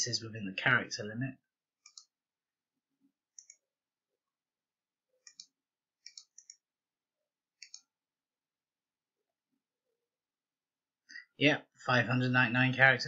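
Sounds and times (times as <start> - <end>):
mouse buttons clicking: 1.8 - 2.2, 3.3 - 3.7, 5.2 - 6.6, 7.6 - 7.9.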